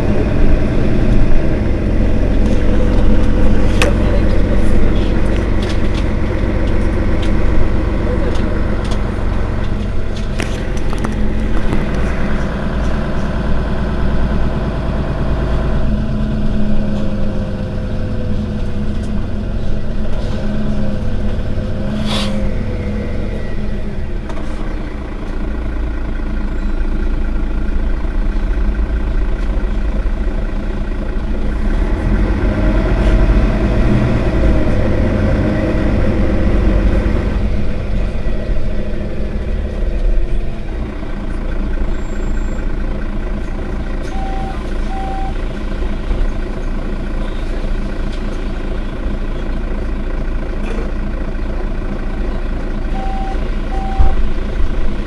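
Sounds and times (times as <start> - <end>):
city bus engine running: 0.0 - 55.0.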